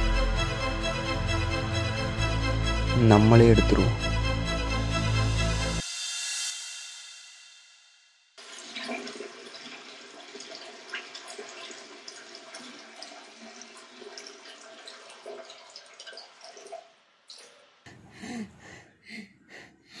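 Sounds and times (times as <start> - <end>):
tap water running into basin: 8.4 - 17.7.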